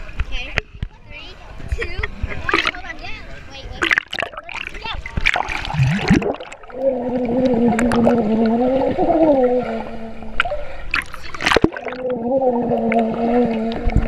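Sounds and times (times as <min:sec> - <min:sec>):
rush of water: 0:00.0 - 0:14.0
child's voice underwater: 0:00.4 - 0:05.5, 0:06.7 - 0:14.0
bubbles crackling: 0:03.8 - 0:14.0.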